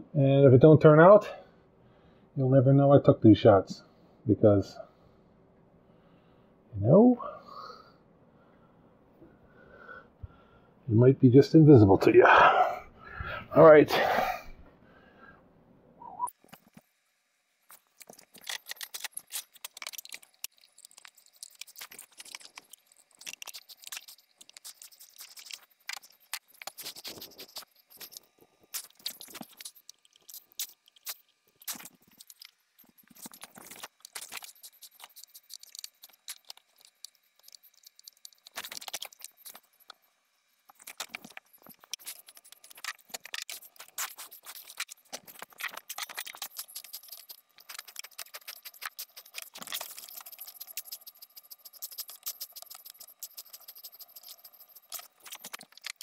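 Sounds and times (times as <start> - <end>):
wrenches and metal fittings clinking: 40.7 - 56.0.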